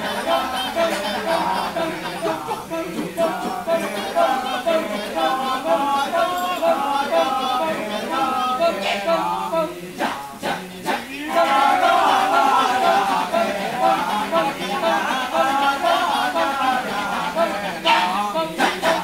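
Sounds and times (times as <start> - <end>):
male chorus chanting: 0.0 - 19.0.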